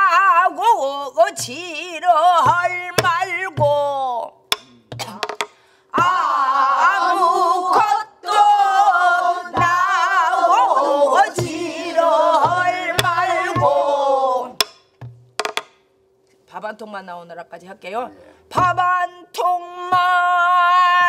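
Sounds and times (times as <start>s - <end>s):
group singing with vibrato: 5.9s - 14.7s
barrel drum strokes: 9.5s - 15.7s.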